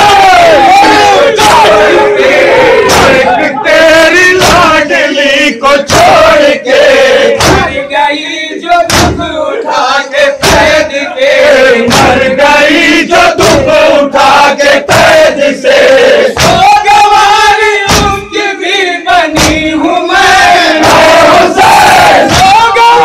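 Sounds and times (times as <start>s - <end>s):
men chanting a lament over loudspeakers: 0.0s - 23.0s
hands beating chests: 2.8s - 4.9s, 5.8s - 6.4s, 7.3s - 7.9s, 8.8s - 9.4s, 10.4s - 10.9s, 11.8s - 12.4s, 13.4s - 13.8s, 16.4s - 17.0s, 17.8s - 18.4s, 19.2s - 19.8s, 20.7s - 23.0s.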